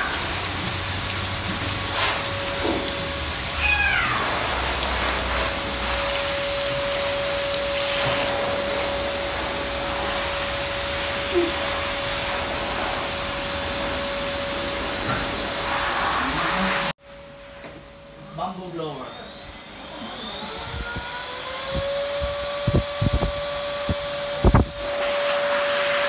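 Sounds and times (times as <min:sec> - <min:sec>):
tap water running and splashing: 0:00.0 - 0:12.1
parrot meow-like call: 0:03.6 - 0:04.4.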